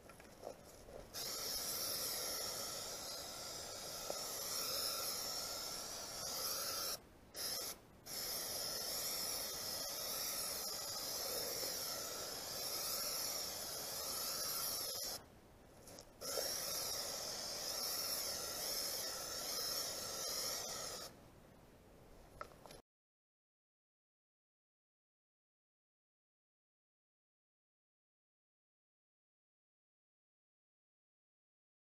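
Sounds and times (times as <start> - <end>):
aerosol spray can hissing: 1.1 - 15.2, 15.9 - 21.1.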